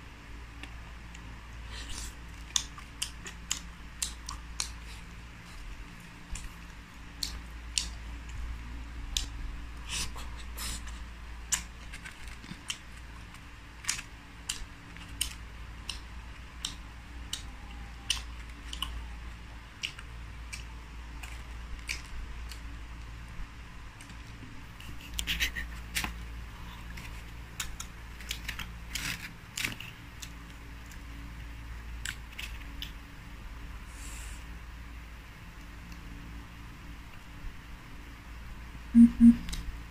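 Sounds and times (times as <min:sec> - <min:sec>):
crunchy fried food tearing: 0:11.5 - 0:16.0, 0:24.8 - 0:31.1, 0:32.0 - 0:33.0
low hum: 0:38.4 - 0:39.9.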